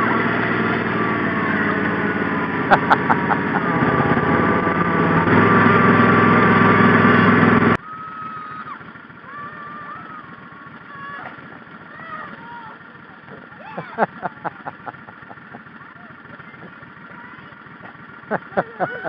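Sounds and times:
small engine running: 0.0 - 19.0
faint children shrieking: 7.8 - 11.3.

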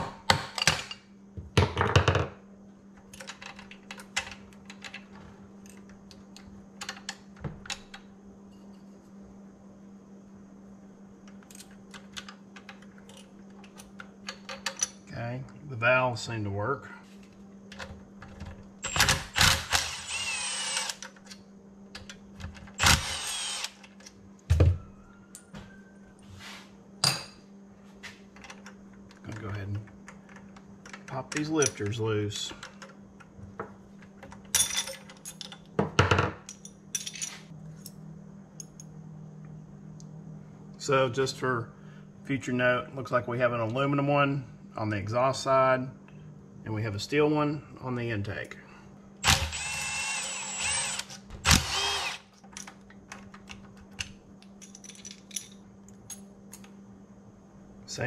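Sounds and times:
impact driver whirring: 18.8 - 21.0, 22.8 - 23.8, 49.2 - 52.3
metal parts clinking: 34.2 - 35.7, 36.4 - 37.9, 54.5 - 56.7.

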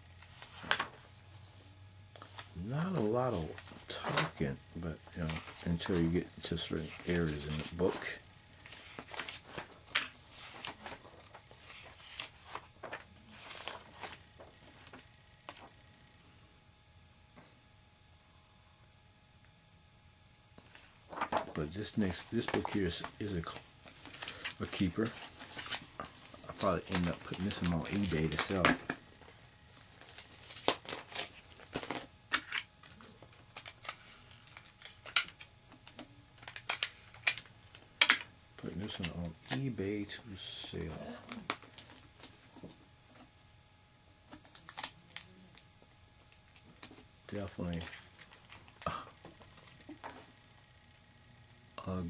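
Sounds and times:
paper pages turning: 0.2 - 1.0, 5.2 - 15.7, 20.7 - 29.0, 29.7 - 32.6, 46.2 - 50.3
plastic bag crinkling: 21.1 - 29.0.

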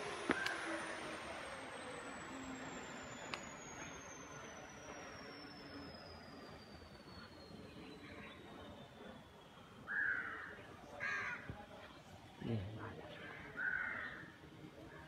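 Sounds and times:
crow cawing: 9.9 - 11.5, 13.6 - 14.2.

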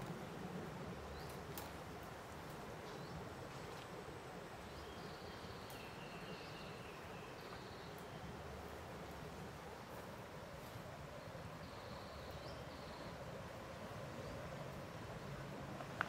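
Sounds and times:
low hiss: 0.0 - 16.0
faint clicks: 5.6 - 5.9.

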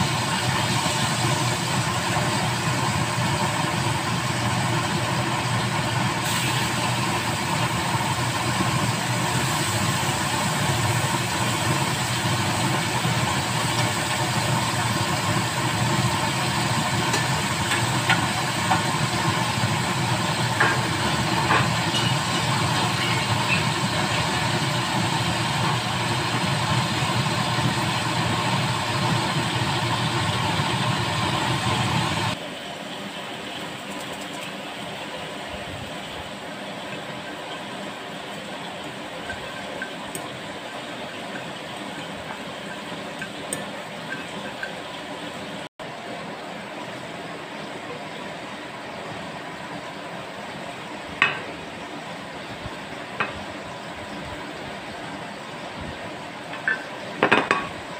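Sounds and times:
gas burners hissing: 0.0 - 57.9.

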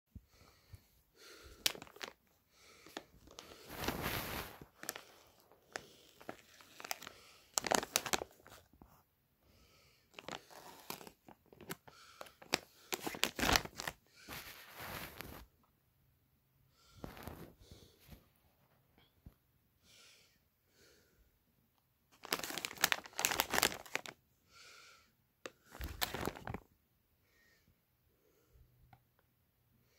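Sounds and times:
plastic bag crinkling: 1.6 - 2.2, 2.8 - 8.7, 10.1 - 15.4, 22.2 - 24.2, 25.7 - 26.6.

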